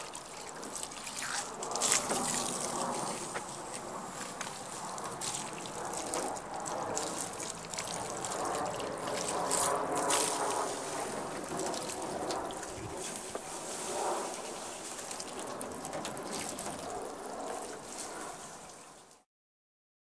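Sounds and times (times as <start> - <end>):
water running off car paintwork: 0.0 - 19.2.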